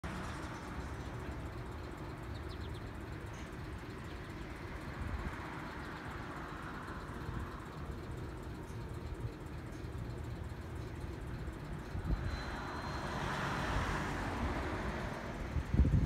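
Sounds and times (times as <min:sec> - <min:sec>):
road traffic: 0:00.0 - 0:16.0
vehicle passing: 0:12.0 - 0:16.0
wind rumble on microphone: 0:15.4 - 0:16.0.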